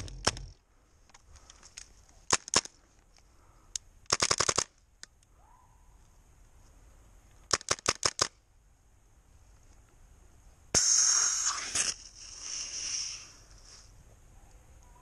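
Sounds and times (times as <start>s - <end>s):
loud hiss of gas: 10.7s - 13.9s.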